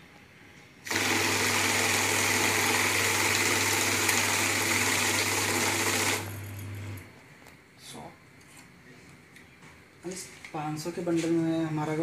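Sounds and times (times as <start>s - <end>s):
note counting machine whirring: 0.9s - 7.0s.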